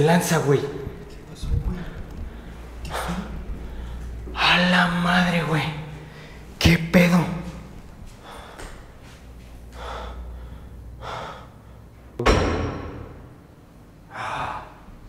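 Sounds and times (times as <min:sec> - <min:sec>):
heavy gasping breaths: 0:01.7 - 0:04.3, 0:08.1 - 0:11.9
door slamming: 0:12.2 - 0:13.5.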